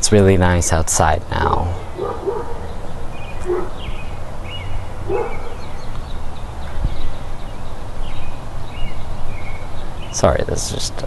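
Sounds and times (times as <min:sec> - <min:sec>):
dog barking: 0:02.0 - 0:02.8, 0:03.4 - 0:03.8, 0:05.1 - 0:05.6.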